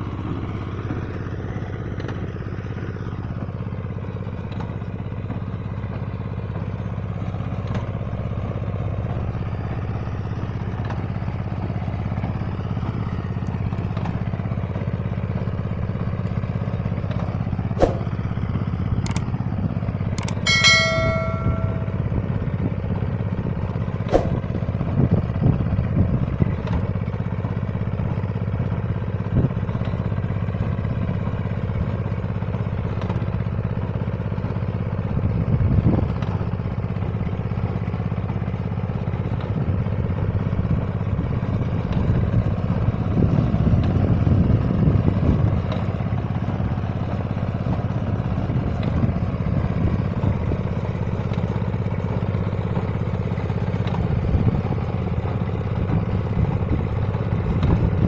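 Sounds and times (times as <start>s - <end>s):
engine running under load: 0.0s - 58.0s
machine clicks and clatter: 20.2s - 20.4s.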